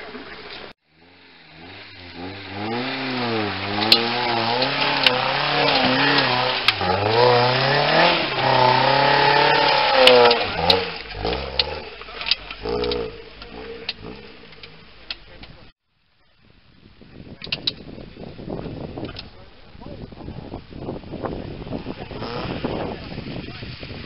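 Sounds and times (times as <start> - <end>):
car engine revving: 0.0 - 15.7.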